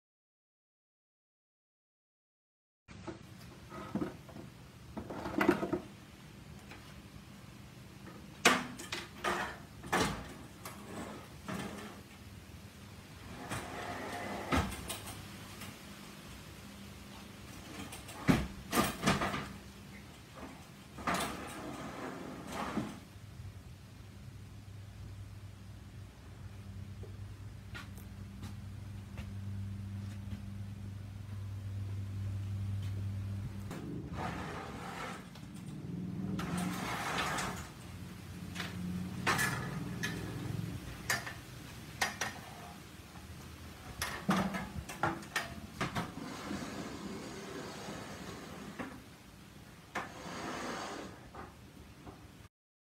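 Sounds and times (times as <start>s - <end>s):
box scraping and rattling: 34.1s - 35.3s.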